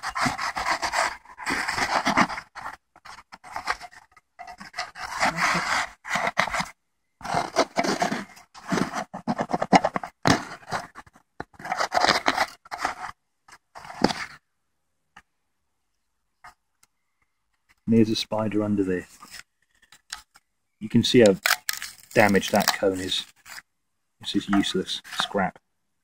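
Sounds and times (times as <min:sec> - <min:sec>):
blade sawing through paper cone: 0:00.0 - 0:02.6, 0:04.6 - 0:06.6.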